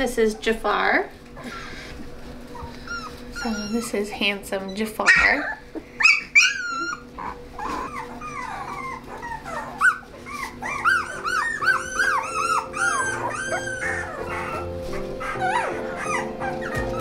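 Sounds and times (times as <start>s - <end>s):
puppies whining and squealing: 1.4s - 17.0s
background music with held tones: 5.6s - 17.0s.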